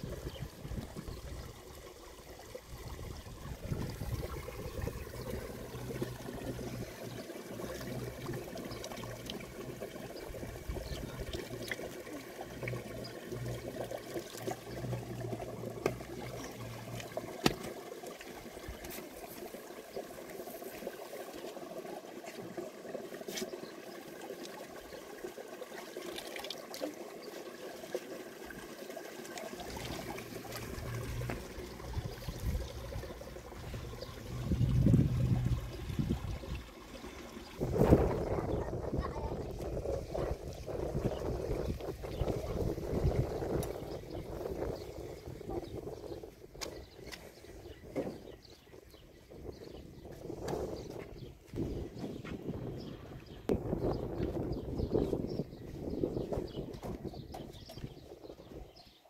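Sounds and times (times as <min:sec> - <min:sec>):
water running and trickling: 0:00.0 - 0:59.0
low hum: 0:03.5 - 0:17.4, 0:29.5 - 0:40.4.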